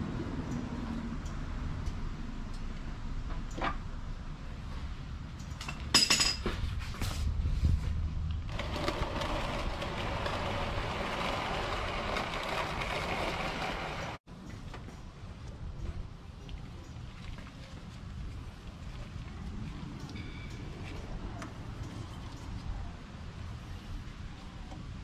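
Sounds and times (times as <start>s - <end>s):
plastic pan scraping on concrete: 8.5s - 14.2s.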